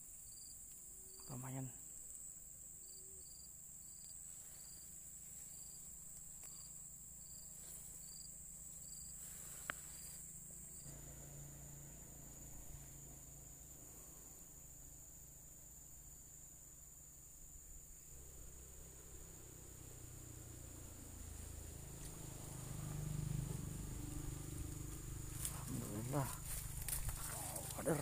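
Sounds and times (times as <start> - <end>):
high-pitched insect chorus: 0.0 - 28.0
insect chirp: 0.0 - 28.0.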